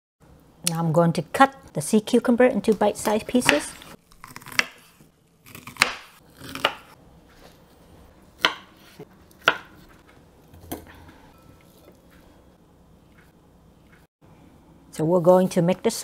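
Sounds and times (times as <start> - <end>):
knife chopping on cutting board: 3.0 - 7.0, 8.4 - 10.0.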